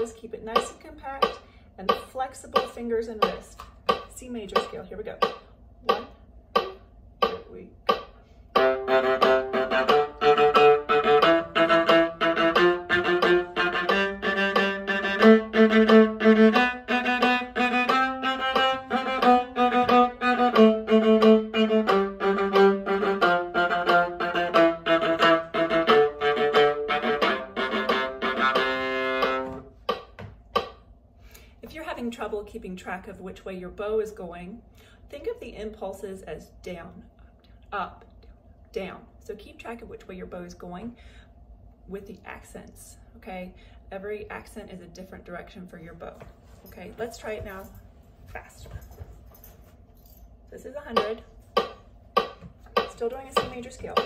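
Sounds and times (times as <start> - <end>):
metronome clicking: 0.5 - 30.8
viola playing a scale: 8.5 - 30.1.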